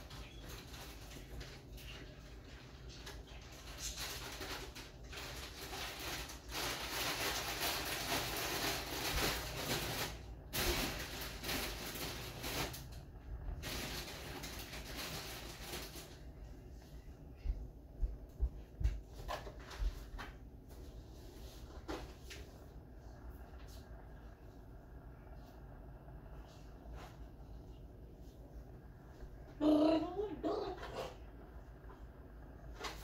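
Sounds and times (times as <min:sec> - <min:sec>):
electric kettle heating water: 0:00.0 - 0:03.5.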